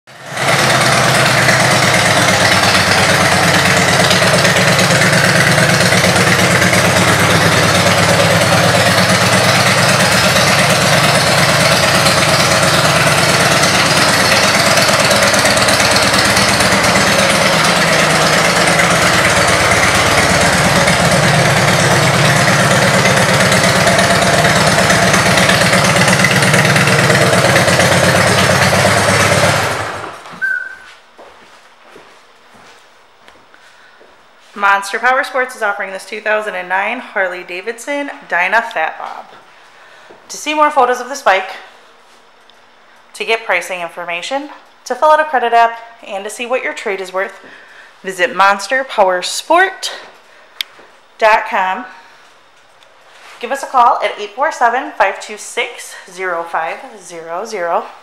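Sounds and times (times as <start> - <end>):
motorcycle engine idling loudly: 0.1 - 30.2.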